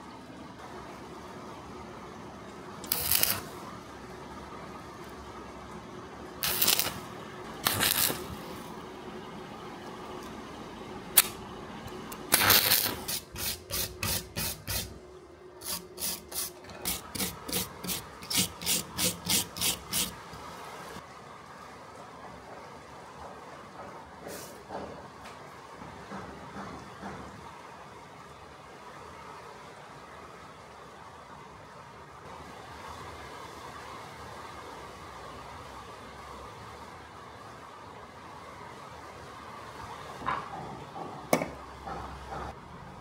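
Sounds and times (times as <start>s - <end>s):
dry scraping strokes: 2.9s - 3.5s, 6.4s - 7.0s, 7.6s - 8.6s, 12.3s - 15.0s, 15.6s - 20.2s.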